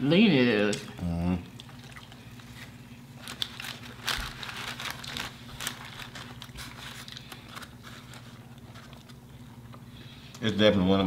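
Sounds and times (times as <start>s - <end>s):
paper wrappers crinkling: 1.6s - 10.5s.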